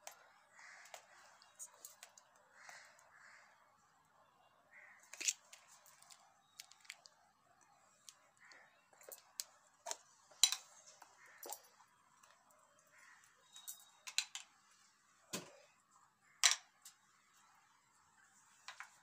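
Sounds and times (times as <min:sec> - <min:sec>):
jars and lids clicking and knocking: 0:08.9 - 0:12.3.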